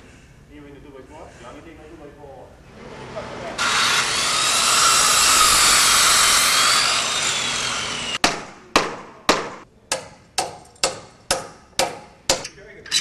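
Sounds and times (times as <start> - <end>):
circular saw cutting wood: 2.8 - 8.2
hammer striking timber: 8.2 - 12.5.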